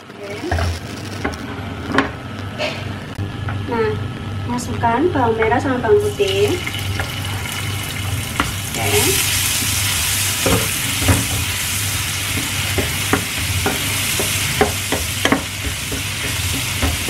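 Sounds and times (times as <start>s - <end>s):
shallots sizzling in hot oil: 0.2s - 2.3s, 6.0s - 17.0s.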